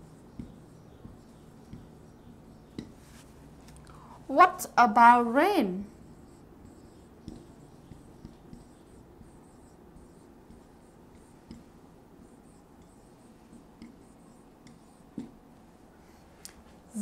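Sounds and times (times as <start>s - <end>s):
marker squeaking on whiteboard: 0.0s - 3.7s, 5.3s - 15.8s
pen ticking against board: 0.2s - 3.0s, 6.1s - 11.7s, 12.6s - 15.4s.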